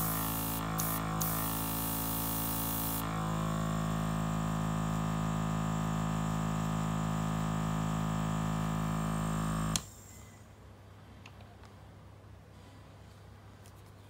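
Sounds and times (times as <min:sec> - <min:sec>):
airbrush compressor humming: 0:00.0 - 0:09.9.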